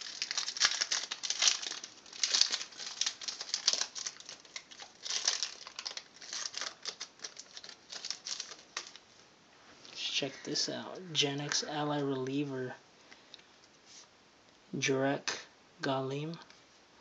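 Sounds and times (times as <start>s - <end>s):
foil wrapper tearing and crinkling: 0.0s - 9.0s.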